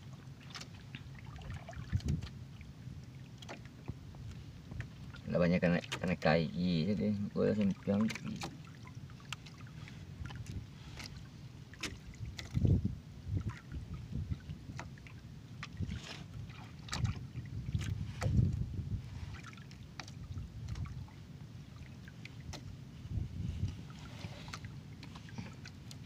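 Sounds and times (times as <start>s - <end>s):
water and wind rumble: 0.0s - 26.0s
clicks and taps handling fish: 3.4s - 5.0s, 5.7s - 6.2s, 7.2s - 8.6s, 22.5s - 22.7s.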